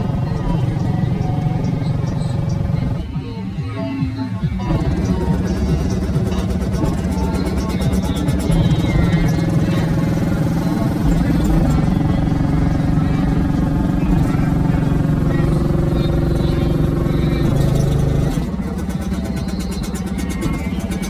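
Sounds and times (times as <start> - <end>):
bass-heavy music through subwoofers: 0.0 - 21.0.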